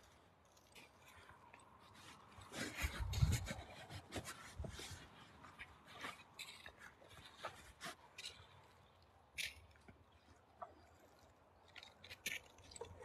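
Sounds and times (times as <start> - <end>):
footsteps crunching on snow: 1.8 - 8.3.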